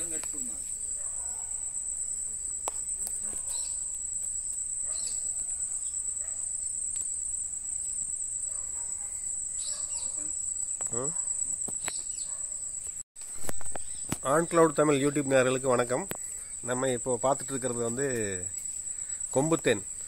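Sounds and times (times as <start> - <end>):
high-pitched insect trill: 0.0 - 20.0
faint scattered calls: 4.8 - 6.7, 8.4 - 12.9.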